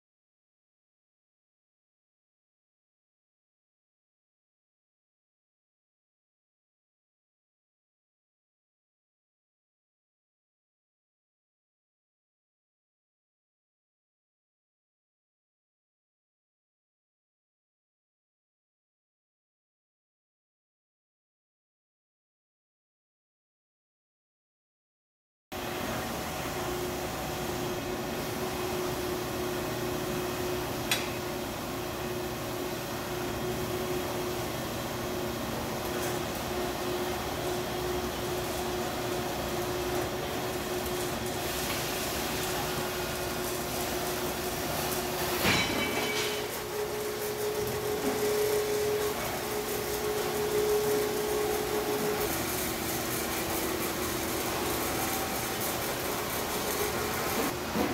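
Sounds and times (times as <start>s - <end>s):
mechanical hum: 25.6s - 57.9s.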